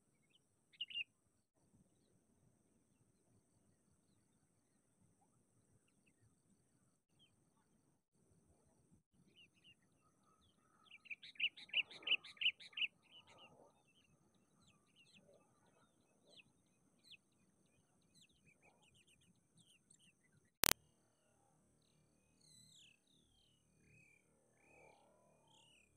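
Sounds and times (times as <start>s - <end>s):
birds chirping: 0.2s - 1.0s, 9.3s - 20.2s.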